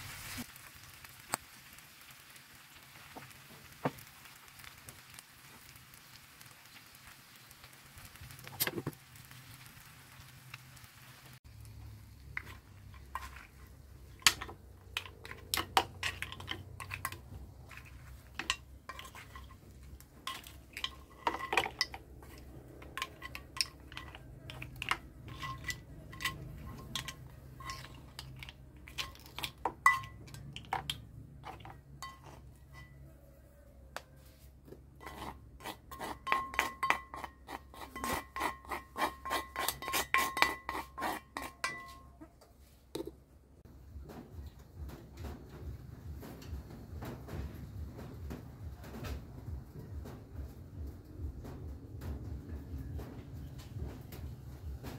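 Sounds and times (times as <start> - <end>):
wooden spoon scraping pan: 12.2 - 33.0, 34.2 - 43.1.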